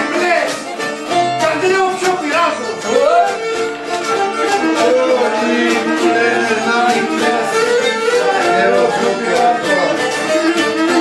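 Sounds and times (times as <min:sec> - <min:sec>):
mandolin plucking folk tune: 0:00.0 - 0:11.0
string instruments: 0:00.0 - 0:11.0.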